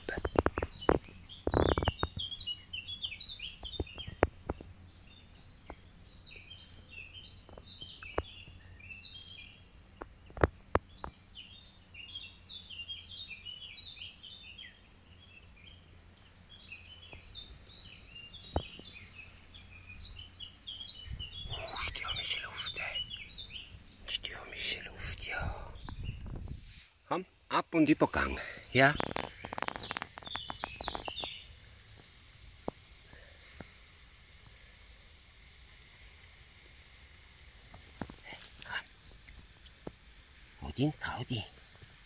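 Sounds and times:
sharp clicks and rustles: 0.0s - 2.3s, 28.7s - 32.1s
low outdoor hum: 0.0s - 42.0s
songbirds chirping: 0.0s - 42.0s.

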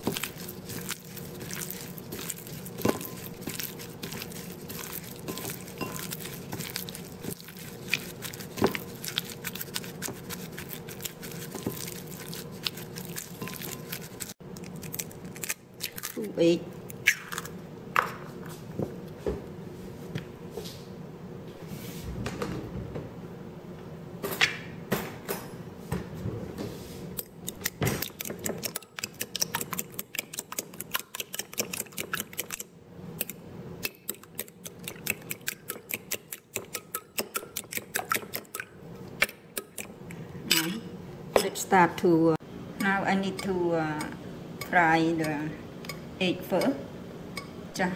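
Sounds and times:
fork beating eggs in glass bowl: 0.0s - 14.4s, 27.2s - 40.8s
clinks on glass bowl: 5.3s - 6.1s.

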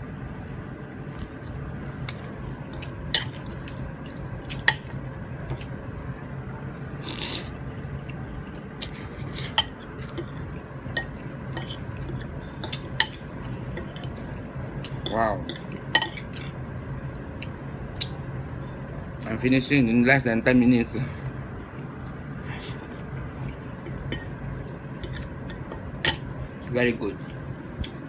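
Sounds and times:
steady low hum: 0.0s - 28.0s
cutlery clinking against bowl: 15.0s - 16.4s.

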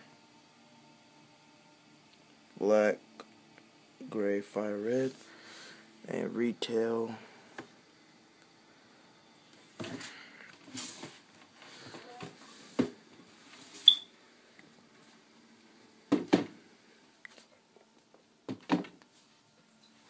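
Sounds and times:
short high squeak: 13.8s - 14.1s.

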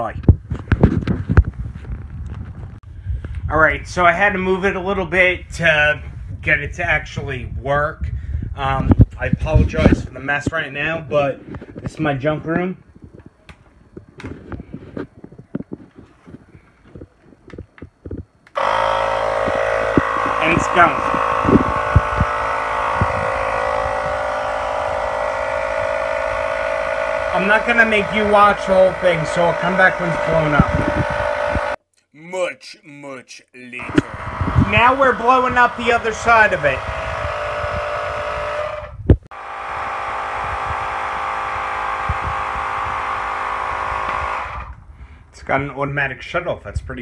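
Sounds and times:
electric tire inflator buzzing: 17.6s - 31.8s, 33.8s - 44.9s
air compressor high-pitched drone: 18.6s - 31.8s, 33.8s - 45.3s.

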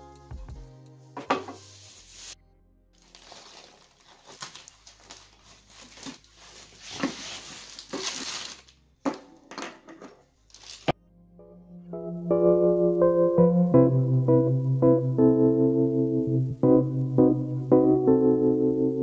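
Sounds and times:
plastic packaging crinkling: 3.0s - 8.8s, 10.4s - 11.0s.

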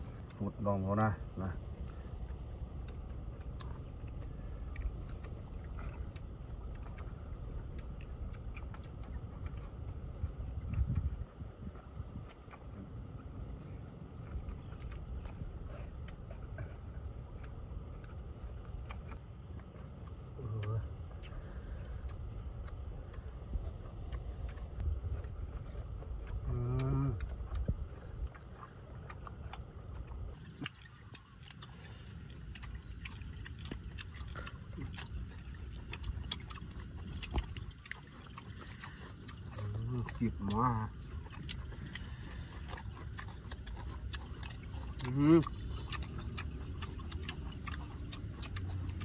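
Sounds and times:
person chewing food: 0.0s - 49.0s
wind rumble on microphone: 1.2s - 19.2s, 20.3s - 38.4s.

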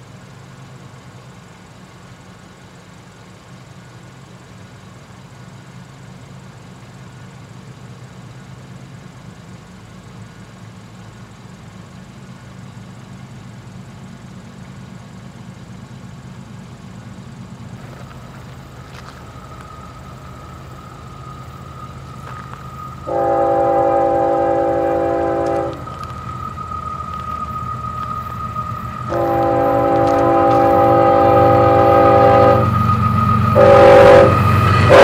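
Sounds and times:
low rumble of train: 0.0s - 35.0s
thin steady high tone: 17.8s - 35.0s
locomotive air horn chord: 19.8s - 35.0s.

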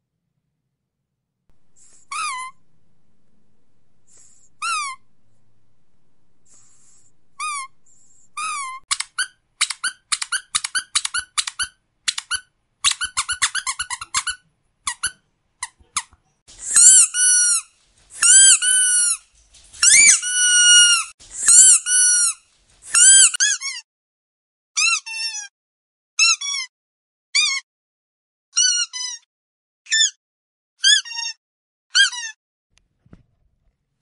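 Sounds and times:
squeaky dog toy squeaking: 1.8s - 2.7s, 4.1s - 5.1s, 6.6s - 19.2s, 19.8s - 23.8s, 24.8s - 25.5s, 26.2s - 26.7s, 27.4s - 27.6s, 28.6s - 29.3s, 29.9s - 30.2s, 30.8s - 32.4s.

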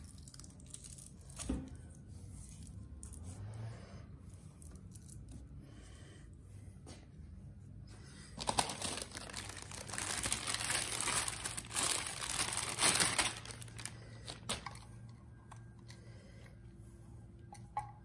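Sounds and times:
plastic bag crinkling: 8.4s - 14.8s.

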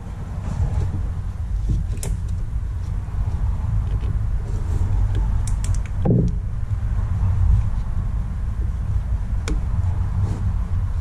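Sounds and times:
steady low rumble: 0.0s - 11.0s
sharp metal clicks: 5.1s - 6.4s.

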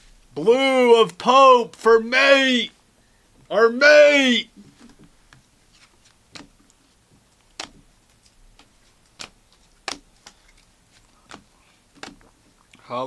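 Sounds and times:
trading cards flicking and snapping: 4.8s - 6.8s, 7.4s - 12.3s.

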